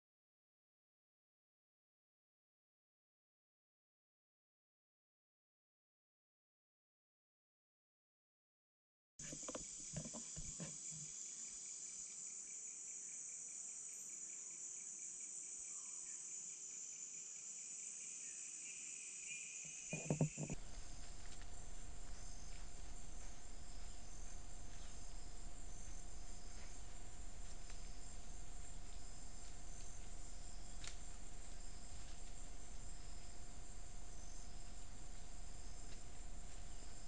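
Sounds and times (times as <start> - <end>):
crickets and insects chirping: 9.2 - 37.0
soft thumps: 19.9 - 20.6
steady hum: 19.9 - 37.0.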